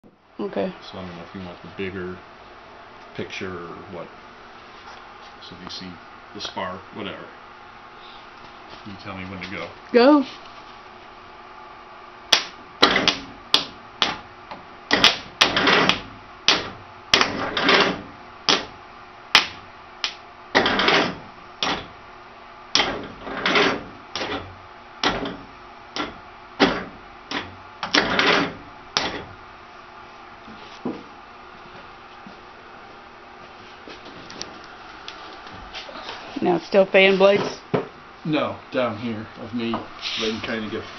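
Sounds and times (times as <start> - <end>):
starter motor clunks and whirs: 25.0 - 29.3.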